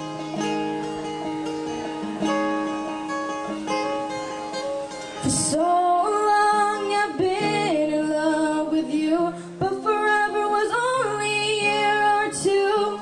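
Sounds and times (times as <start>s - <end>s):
acoustic guitar picking: 0.0s - 13.0s
woman singing into microphone: 5.2s - 13.0s.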